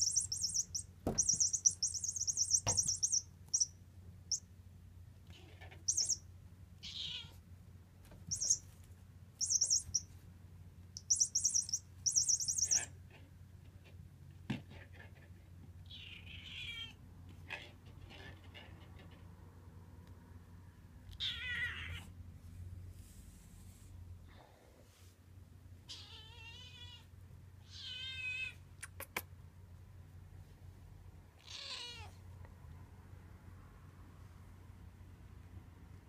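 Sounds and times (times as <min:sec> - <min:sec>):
high-pitched toy rattling: 0:00.0 - 0:03.7, 0:05.9 - 0:06.2, 0:08.3 - 0:08.6, 0:09.4 - 0:10.0, 0:11.0 - 0:12.9.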